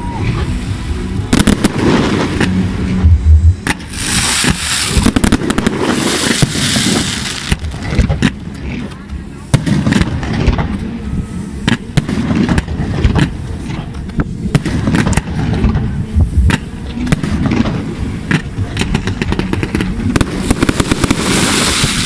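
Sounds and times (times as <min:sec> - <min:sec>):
hissing crackle of fireworks: 0:00.0 - 0:03.0, 0:03.6 - 0:08.9, 0:14.4 - 0:22.0
low rumble: 0:00.0 - 0:22.0
fireworks bursting: 0:00.1 - 0:08.8, 0:09.5 - 0:10.8, 0:11.6 - 0:13.7, 0:14.4 - 0:22.0.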